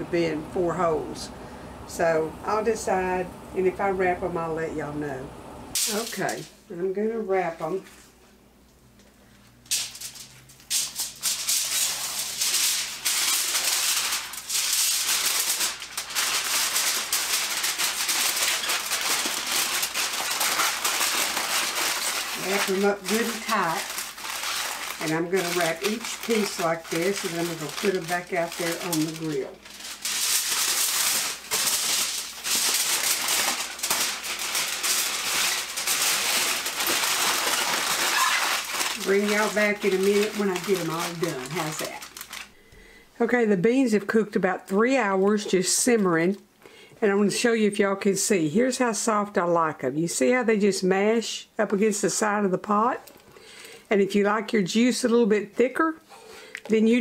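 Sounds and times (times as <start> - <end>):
aluminum foil crinkling: 5.8 - 6.6, 9.0 - 42.8.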